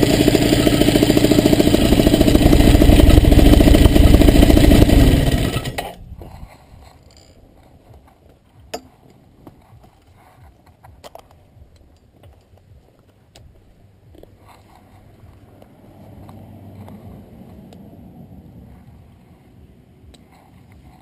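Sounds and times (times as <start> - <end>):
small engine idling: 0.0 - 6.1.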